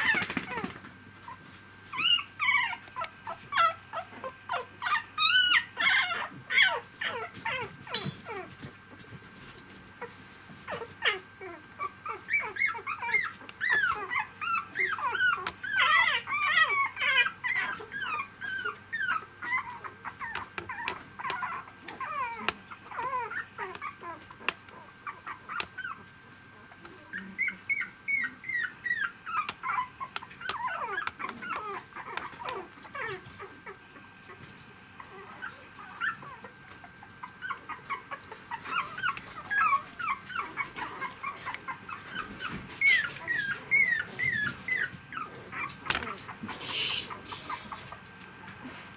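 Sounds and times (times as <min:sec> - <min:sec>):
puppies whimpering and squeaking: 0:00.0 - 0:08.7, 0:10.0 - 0:48.2.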